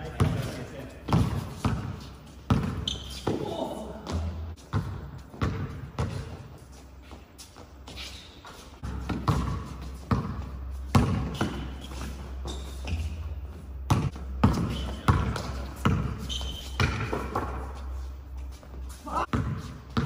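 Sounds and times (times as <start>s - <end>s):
basketball bouncing on hard floor: 1.1s - 6.4s, 8.8s - 11.7s, 13.9s - 17.6s.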